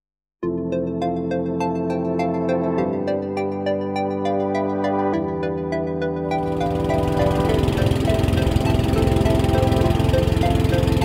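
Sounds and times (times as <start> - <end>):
background music with melody: 0.4 - 11.0
boat engine running: 6.3 - 11.0.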